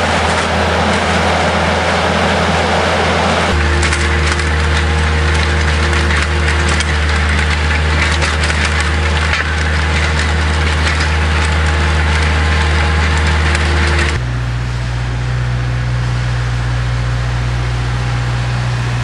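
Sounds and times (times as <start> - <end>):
soil rattling against digging chain: 0.0 - 1.5, 3.5 - 14.2
diesel engine running: 0.0 - 19.0.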